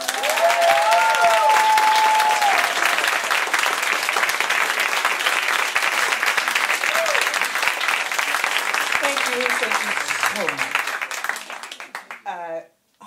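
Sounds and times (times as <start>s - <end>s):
voices whooping and cheering: 0.0s - 3.2s, 6.8s - 7.4s
audience applauding: 0.0s - 12.5s.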